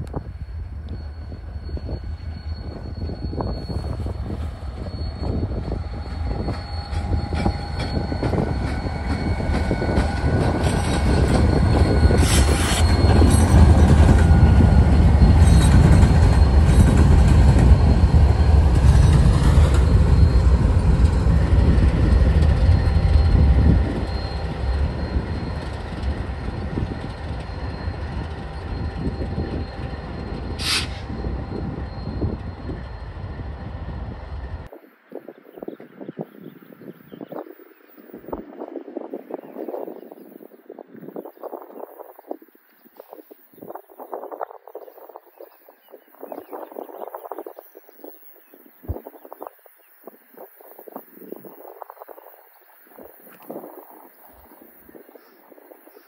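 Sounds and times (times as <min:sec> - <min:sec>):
wheels squealing: 0:00.0 - 0:34.7
diesel locomotives rumbling past: 0:00.0 - 0:42.7
short sharp high noise: 0:30.6 - 0:31.2.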